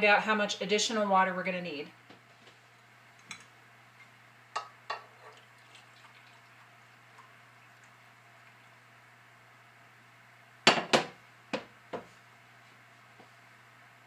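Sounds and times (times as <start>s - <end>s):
broth trickling into a cup: 5.1s - 8.9s.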